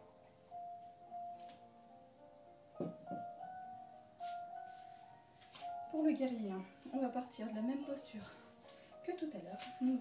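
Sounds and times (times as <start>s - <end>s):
calm keyboard music: 0.0s - 10.0s
light knock: 2.8s - 3.3s.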